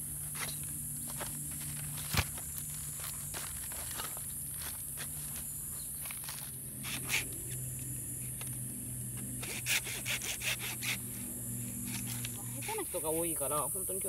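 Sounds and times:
saw rasping through log: 0:06.8 - 0:07.4, 0:09.4 - 0:13.2.

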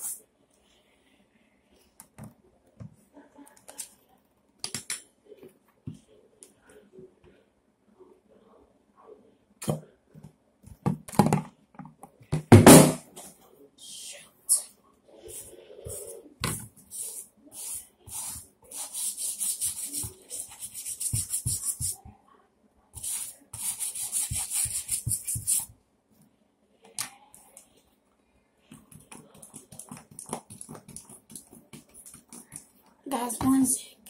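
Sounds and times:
brush scrubbing a sneaker: 0:16.8 - 0:22.0.

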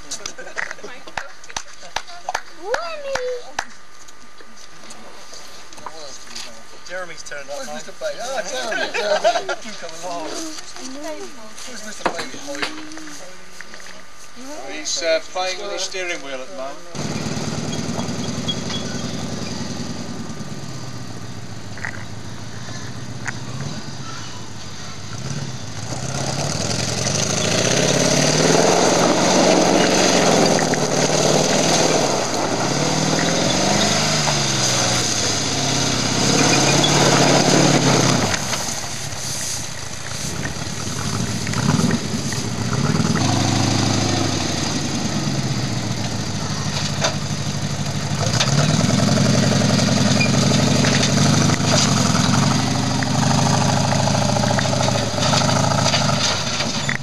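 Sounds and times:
off-road vehicle engine revving: 0:16.9 - 0:57.0.

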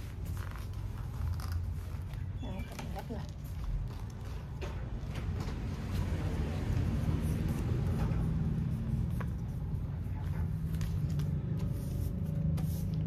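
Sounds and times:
paper crinkling: 0:00.0 - 0:04.6
low engine rumble: 0:00.0 - 0:13.0.

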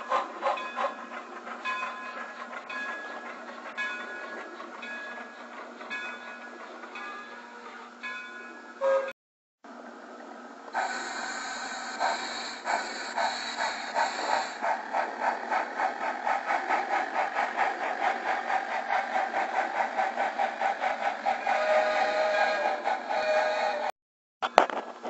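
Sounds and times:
steam locomotive exhaust chuffs: 0:00.0 - 0:09.1, 0:10.7 - 0:23.9
hiss of escaping steam: 0:10.7 - 0:23.9.

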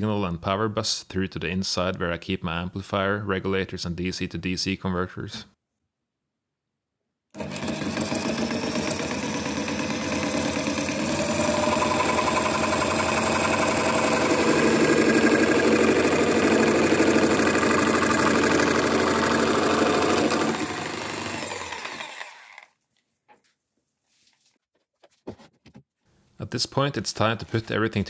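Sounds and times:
jigsaw cutting plastic: 0:07.4 - 0:22.8.

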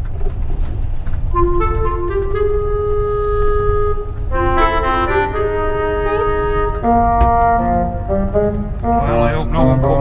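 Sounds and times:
steady low rumble: 0:00.0 - 0:10.0
background music melody: 0:01.3 - 0:10.0.

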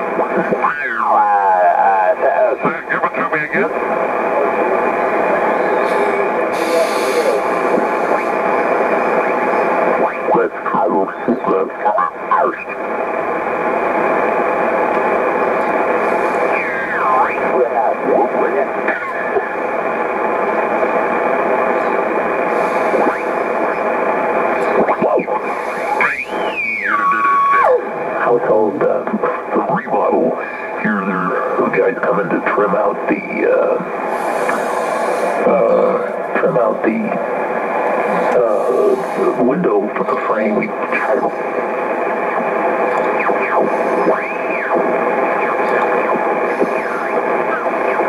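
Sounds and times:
radio band hiss: 0:00.0 - 0:48.0
garbled sideband signals: 0:42.8 - 0:48.0.

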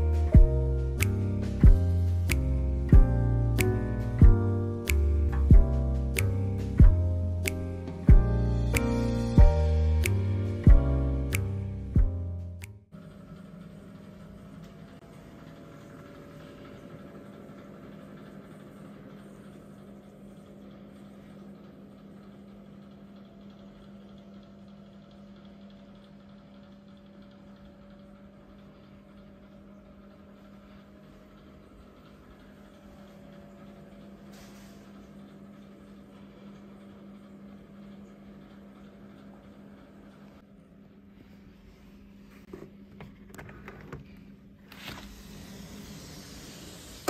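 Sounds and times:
machinery hum: 0:00.0 - 0:47.0.

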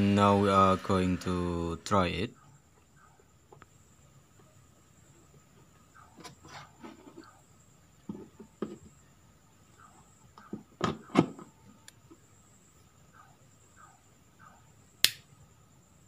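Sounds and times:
plug handling knocks and rubbing: 0:08.0 - 0:09.0.

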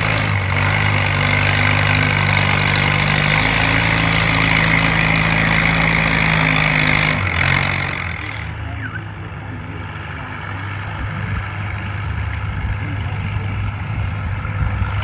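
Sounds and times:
tractor engine running: 0:00.0 - 0:15.0.

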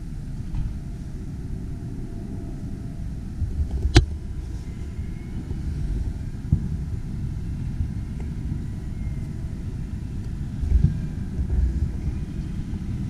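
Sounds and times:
distant fireworks booming: 0:06.1 - 0:08.7.

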